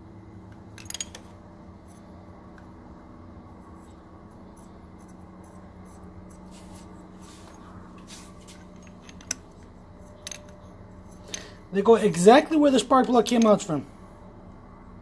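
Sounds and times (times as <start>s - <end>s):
steady low hum: 0.0s - 15.0s
scratchy handling noises: 3.7s - 11.3s.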